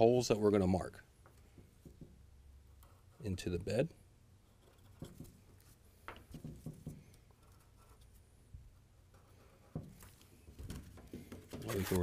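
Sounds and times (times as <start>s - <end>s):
marker scratching on cardboard: 7.4s - 8.2s, 11.6s - 12.0s.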